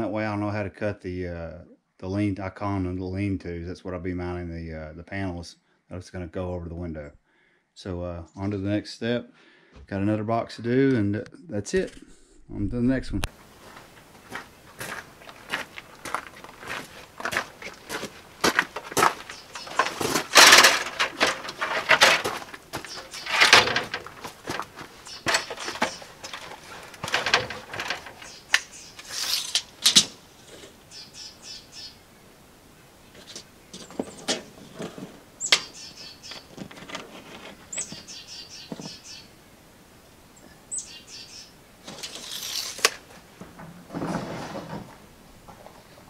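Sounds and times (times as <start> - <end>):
birds chirping: 13.5 - 32.5, 35.3 - 39.5, 40.3 - 41.6
stepladder knocking and clattering: 18.6 - 28.3.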